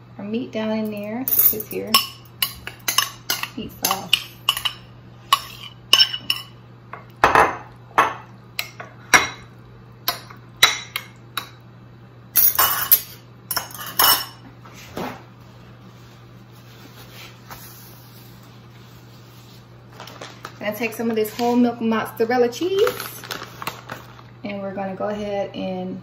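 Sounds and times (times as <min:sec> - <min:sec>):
metal spoon clinking on dishes: 0:01.3 - 0:06.6, 0:12.4 - 0:14.4.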